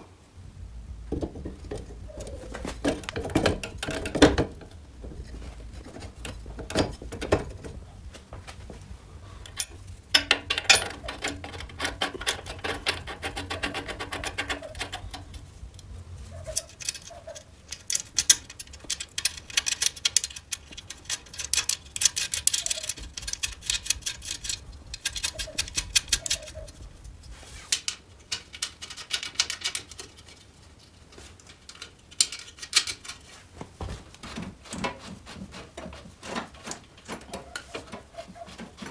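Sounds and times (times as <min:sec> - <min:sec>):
tools and metal parts clattering: 0:01.2 - 0:07.8, 0:09.4 - 0:15.4, 0:16.3 - 0:26.8, 0:27.7 - 0:33.4.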